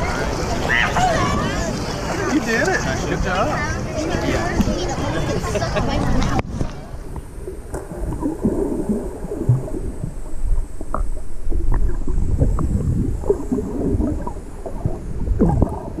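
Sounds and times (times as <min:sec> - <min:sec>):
underwater rumbling and gurgling: 0:03.9 - 0:16.0
faint underwater clicks: 0:05.9 - 0:16.0.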